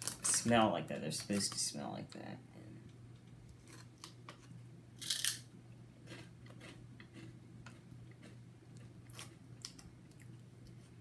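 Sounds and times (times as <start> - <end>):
snack bag crinkling: 0.0 - 0.5, 3.6 - 5.4
steady low hum: 0.0 - 11.0.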